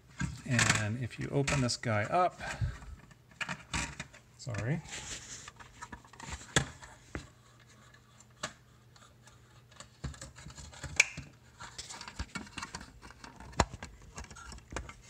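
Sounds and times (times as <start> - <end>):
plastic clicks and scratching: 0.2 - 4.8, 5.4 - 15.0
plastic snaps: 10.9 - 11.3.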